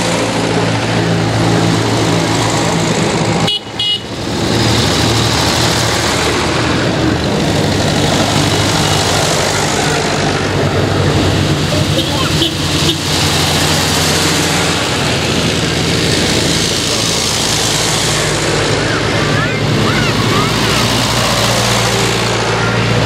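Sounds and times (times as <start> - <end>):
tractor engines running: 0.0 - 23.0
high horn toot: 3.4 - 4.2, 11.9 - 13.1.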